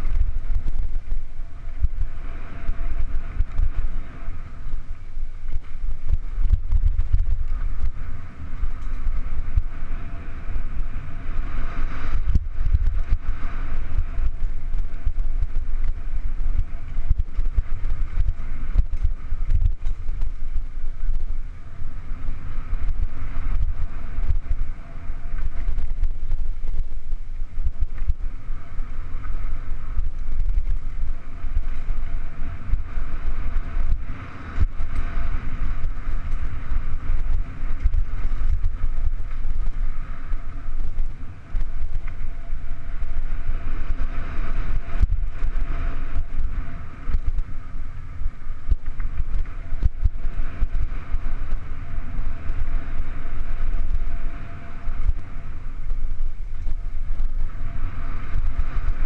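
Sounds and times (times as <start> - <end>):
wind rushing over microphone: 0.0 - 59.0
bike clicks and rattles: 4.6 - 9.8, 11.9 - 21.4, 34.6 - 42.5.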